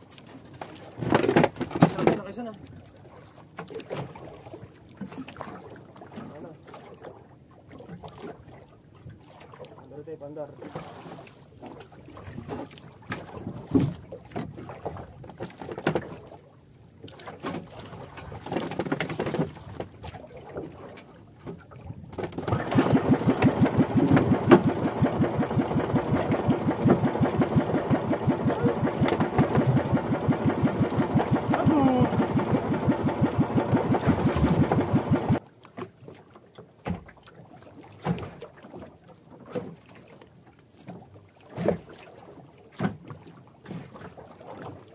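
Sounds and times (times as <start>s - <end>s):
boat engine chugging: 22.4s - 35.4s.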